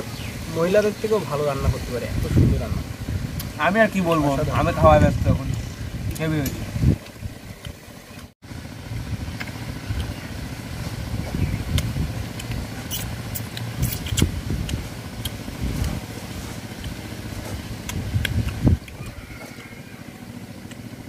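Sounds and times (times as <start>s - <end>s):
wind buffeting microphone: 1.1s - 8.1s, 8.7s - 19.4s
people eating with fingers: 11.8s - 16.0s, 17.8s - 19.2s.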